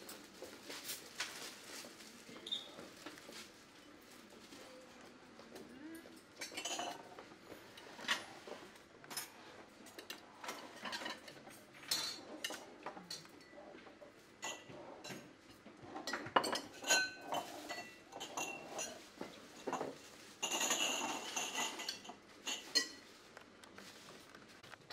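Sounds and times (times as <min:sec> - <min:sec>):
cutlery clinking on ceramic plates: 0:06.4 - 0:07.2, 0:09.1 - 0:13.6, 0:16.0 - 0:23.0.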